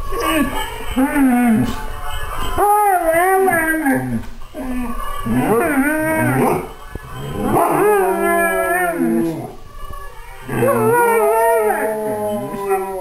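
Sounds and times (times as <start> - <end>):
dogs howling: 2.6 - 9.6, 10.2 - 13.0.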